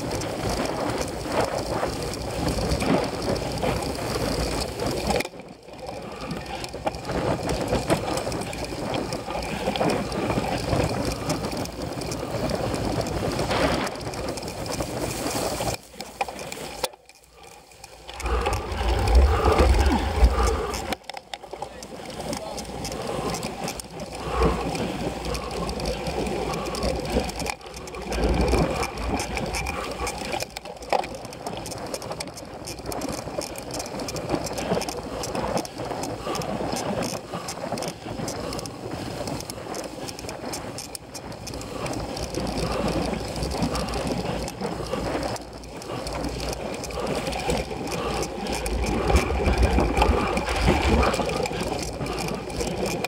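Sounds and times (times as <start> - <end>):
bicycle rattling clatter: 0.0 - 53.0
low rumbling: 17.4 - 21.0.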